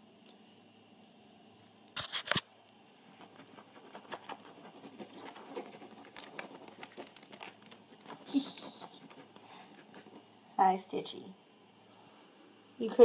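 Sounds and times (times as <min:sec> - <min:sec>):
cat claws scratching plastic pipe: 0:03.2 - 0:10.3.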